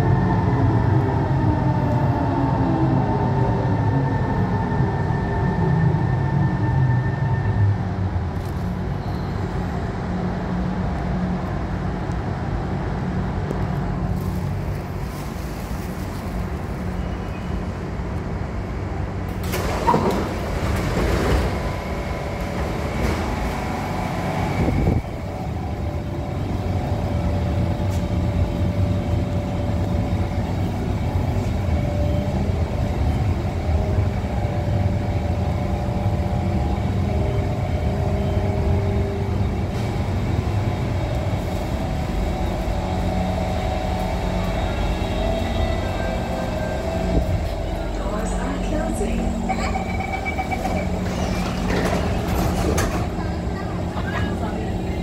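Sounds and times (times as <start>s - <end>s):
train carriage hum: 0.0s - 55.0s
train rumble: 0.0s - 55.0s
train doors opening: 19.2s - 25.8s, 37.0s - 55.0s.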